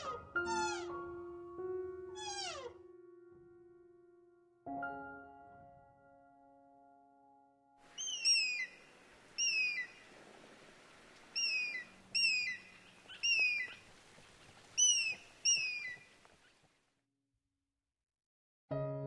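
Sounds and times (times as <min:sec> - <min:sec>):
eagle calling: 0:00.0 - 0:01.0, 0:02.2 - 0:02.7, 0:07.9 - 0:16.6.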